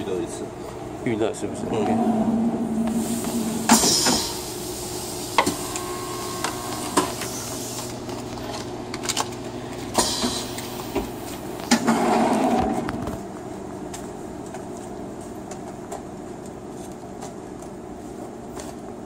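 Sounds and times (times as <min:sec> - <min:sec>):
machine hum: 0:00.0 - 0:14.4.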